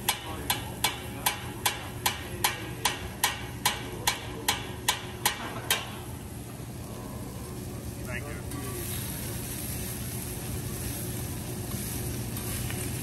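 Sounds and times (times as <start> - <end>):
metal utensils clacking rhythmically: 0.0 - 6.0
low steady hum: 0.0 - 13.0.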